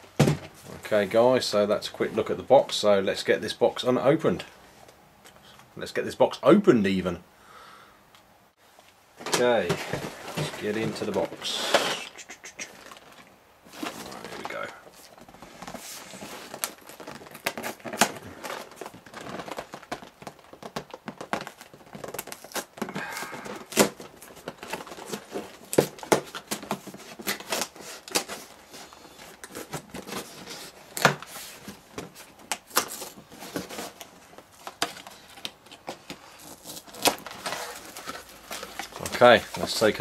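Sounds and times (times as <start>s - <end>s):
cardboard box being opened: 12.8s - 40.0s.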